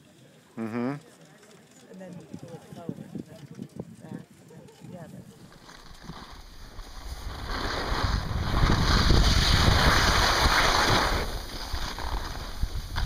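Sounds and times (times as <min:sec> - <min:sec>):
wind buffeting microphone: 0:02.0 - 0:13.0
skis hissing over snow: 0:05.4 - 0:13.0.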